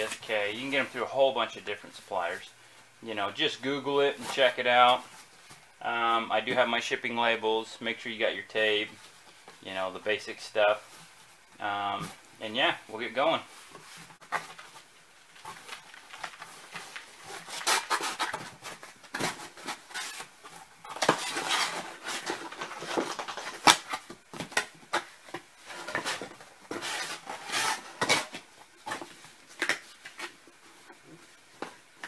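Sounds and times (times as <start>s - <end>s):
cardboard rustling: 13.0s - 32.0s
cardboard box scraping and creasing: 21.0s - 23.6s, 25.6s - 28.2s.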